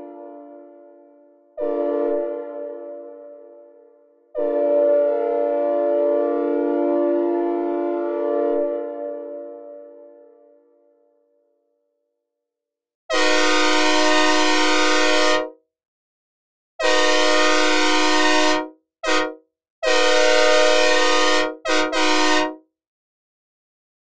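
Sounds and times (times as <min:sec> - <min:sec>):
synthesized train horn chord: 0:00.0 - 0:10.8, 0:13.1 - 0:15.5, 0:16.8 - 0:22.6.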